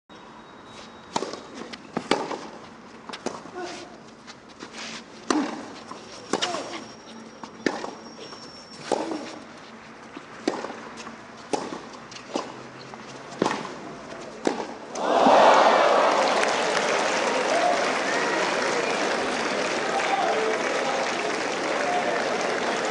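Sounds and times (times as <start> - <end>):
tennis ball struck by rackets: 1.2 - 2.6, 5.3 - 5.7, 8.9 - 9.4, 10.4 - 12.7, 13.3 - 15.0.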